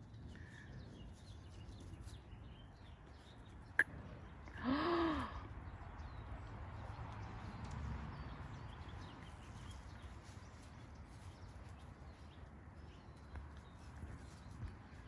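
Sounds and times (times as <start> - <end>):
puppies rustling through dry leaves: 7.4 - 15.0.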